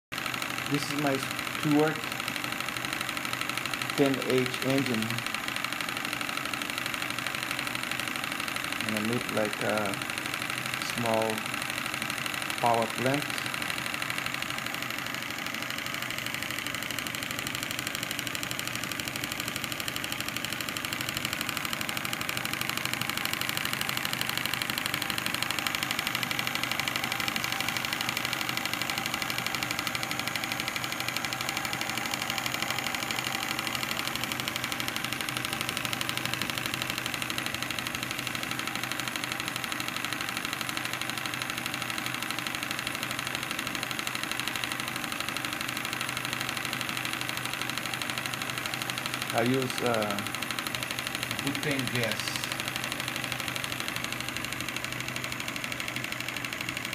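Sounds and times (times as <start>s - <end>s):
model steam engine running: 0.2s - 56.9s.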